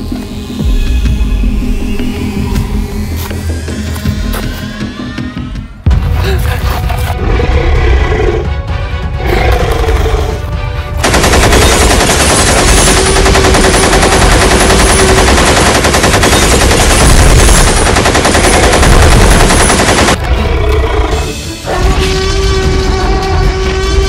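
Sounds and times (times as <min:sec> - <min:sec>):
music: 0:00.0 - 0:24.0
automatic rifle fire: 0:11.0 - 0:20.2.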